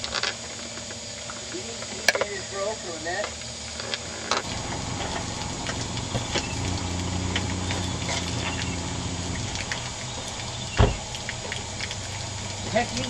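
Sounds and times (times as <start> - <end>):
low hum: 3.5 - 13.0
water running from hoses: 3.9 - 13.0.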